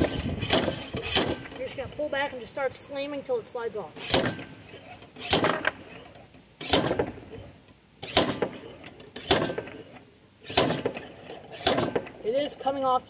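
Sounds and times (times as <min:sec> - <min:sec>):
slide hammer metallic clank: 0:04.0 - 0:07.2, 0:08.0 - 0:12.2.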